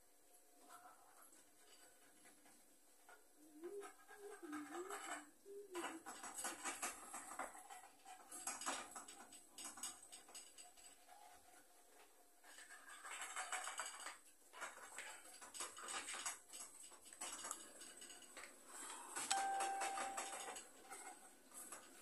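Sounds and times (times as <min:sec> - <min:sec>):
utensils and dishes clattering: 0:15.4 - 0:21.0
electronic beep: 0:19.3 - 0:20.4.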